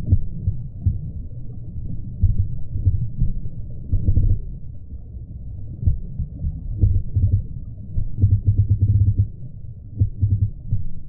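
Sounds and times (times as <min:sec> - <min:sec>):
underwater stream rumble: 0:00.0 - 0:11.0
soft underwater thumps: 0:02.2 - 0:04.4, 0:05.8 - 0:09.4, 0:10.0 - 0:11.0.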